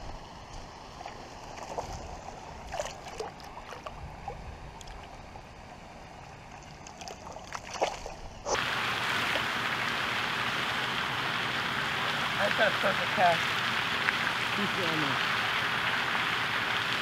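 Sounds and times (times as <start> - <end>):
small splashes in shallow water: 0.6 - 5.4, 6.3 - 17.0
loud steady hiss: 8.5 - 17.0.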